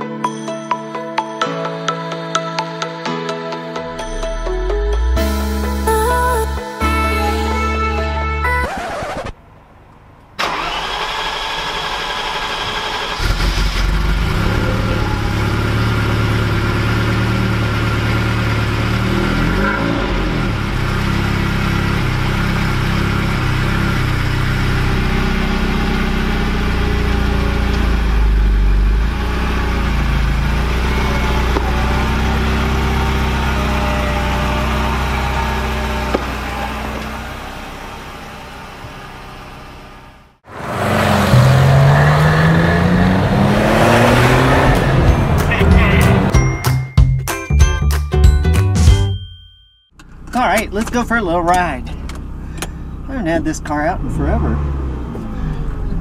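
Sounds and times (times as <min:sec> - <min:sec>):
car engine fast idle: 0:10.4 - 0:19.0, 0:51.5 - 0:53.1.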